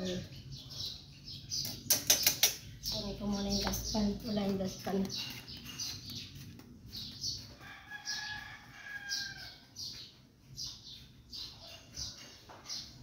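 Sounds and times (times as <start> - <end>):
rooster crowing: 7.6 - 9.7.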